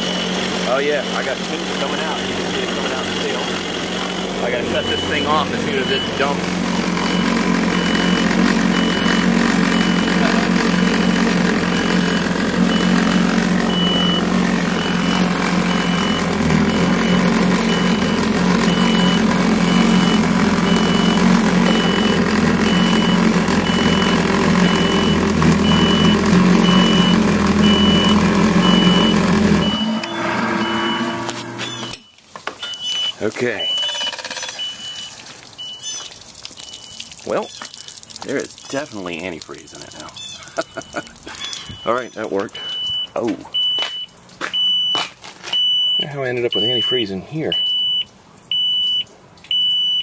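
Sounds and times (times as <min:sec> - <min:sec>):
jet ski engine running: 0:00.0 - 0:32.0
warning beeps: 0:00.0 - 0:37.5, 0:40.0 - 0:45.0, 0:45.6 - 0:50.0.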